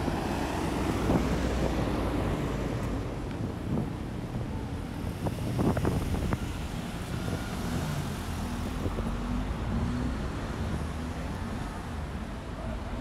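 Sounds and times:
road vehicles rumbling past: 0.0 - 13.0
wind buffeting microphone: 0.1 - 9.8.

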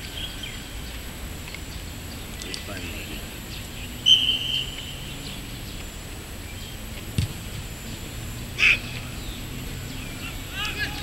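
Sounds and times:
open-air background noise: 0.0 - 11.0
football kick thud: 7.1 - 7.4.

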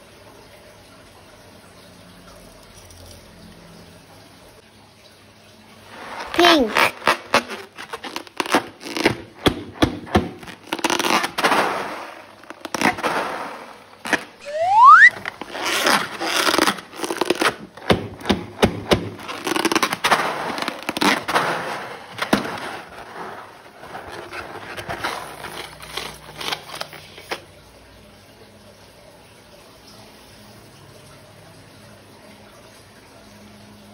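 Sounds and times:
sticky slime crackling: 6.4 - 13.2, 14.0 - 22.5
rising balloon squeak: 14.4 - 17.6.

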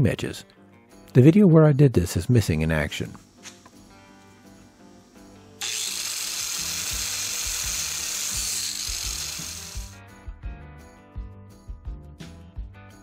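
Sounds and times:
background music: 0.0 - 13.0
wire brush grinder scrubbing steel: 5.1 - 10.0.

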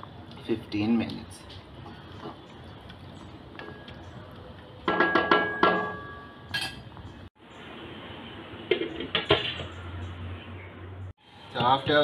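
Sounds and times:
glass lid clinking on metal pot: 4.9 - 6.9.

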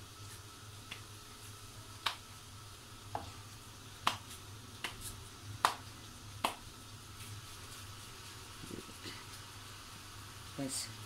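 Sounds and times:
hands slapping dough: 0.8 - 1.1, 2.0 - 2.3, 4.0 - 6.7.

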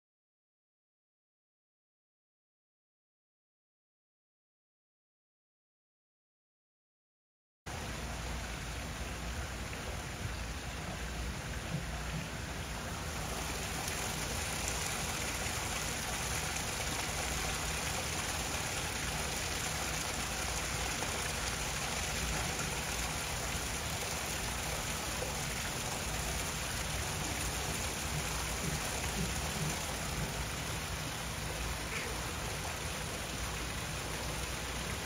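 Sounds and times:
water splashing into pond: 7.7 - 35.0.

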